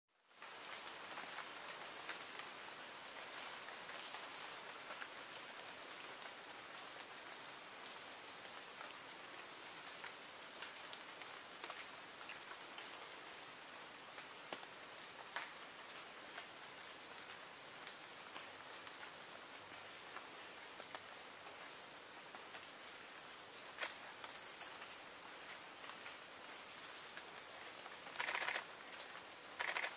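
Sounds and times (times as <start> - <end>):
hummingbird singing: 3.0 - 6.0, 23.0 - 25.2.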